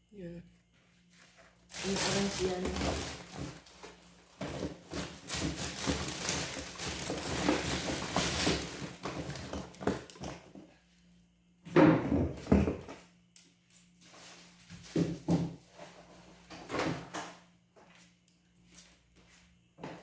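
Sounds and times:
plastic packaging crinkling: 0:01.7 - 0:09.8.

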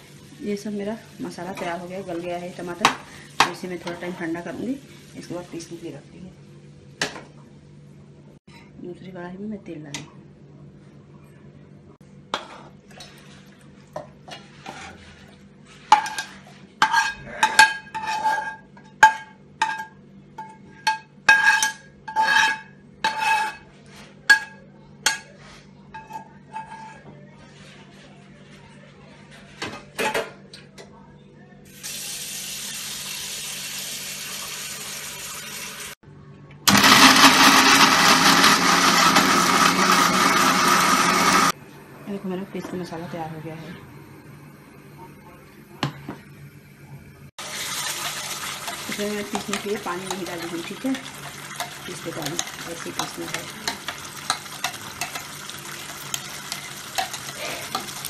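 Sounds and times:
metal spoon scraping a pan: 0:14.3 - 0:28.0, 0:47.9 - 0:58.0
mixer grinder whining: 0:36.7 - 0:41.6.

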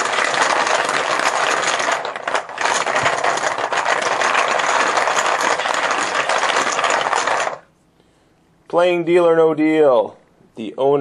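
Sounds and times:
plastic chips clattering in a bucket: 0:00.0 - 0:07.7.

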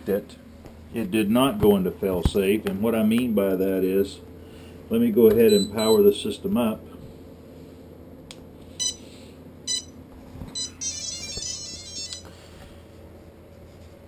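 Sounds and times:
high start-up beeps: 0:05.5 - 0:06.0, 0:08.8 - 0:09.0, 0:09.7 - 0:10.0, 0:10.6 - 0:12.2.

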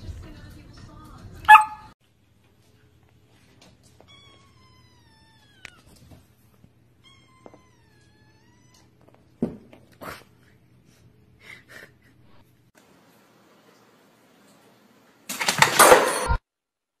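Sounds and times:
puppy squeaking: 0:01.5 - 0:01.9
kittens meowing: 0:04.0 - 0:06.0, 0:07.0 - 0:08.9.

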